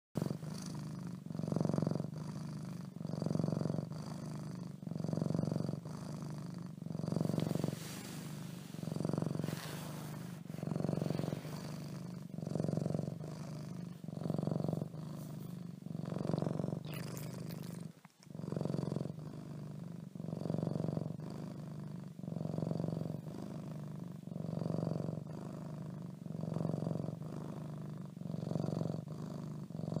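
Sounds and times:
cat purring: 0.2 - 30.0.

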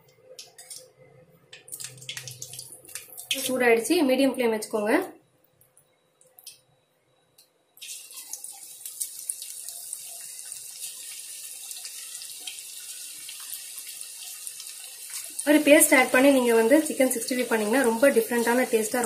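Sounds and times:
chicken sizzling in hot oil: 7.8 - 19.0.

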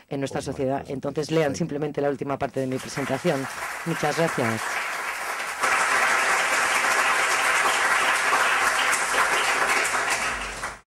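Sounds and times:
audience applauding: 2.7 - 10.9.

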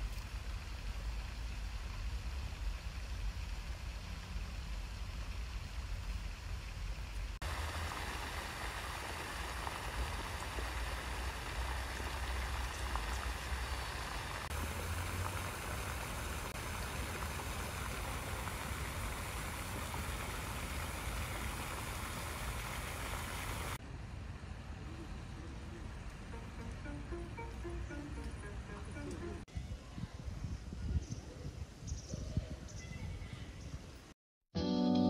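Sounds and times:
wind buffeting microphone: 29.5 - 34.1.

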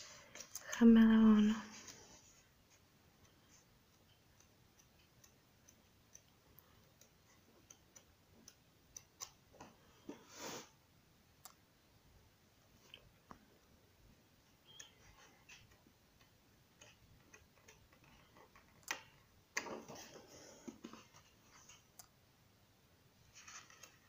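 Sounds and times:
paper ticks and clicks: 2.7 - 9.8
page rustling: 23.3 - 24.0.

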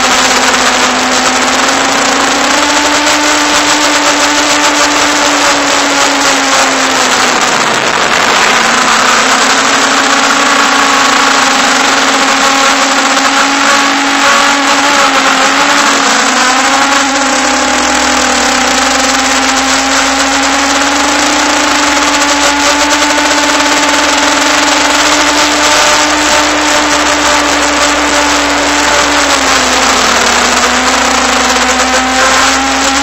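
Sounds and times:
drone motors whining: 0.0 - 33.0.

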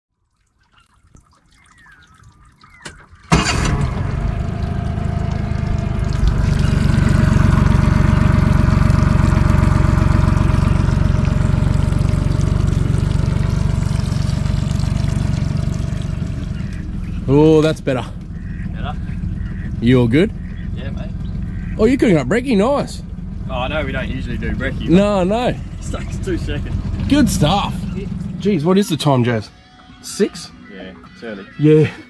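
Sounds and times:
liquid pouring into water: 0.2 - 17.3.

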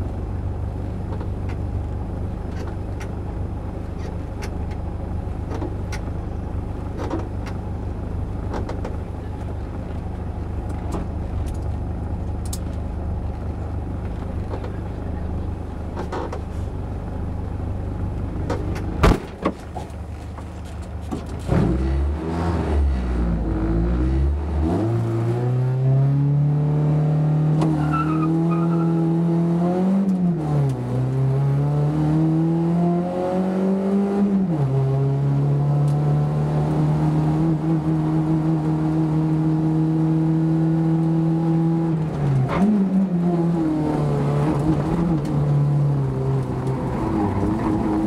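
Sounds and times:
car engine accelerating: 20.0 - 48.0.

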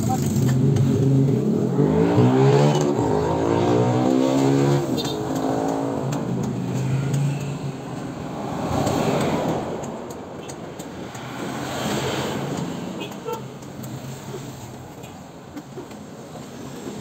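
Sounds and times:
loud engine passing: 0.5 - 10.0.

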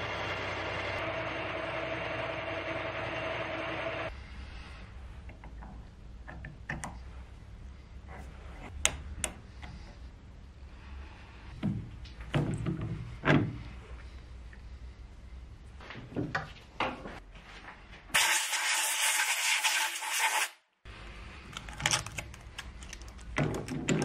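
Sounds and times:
metal parts knocking and clicking: 21.5 - 24.0.

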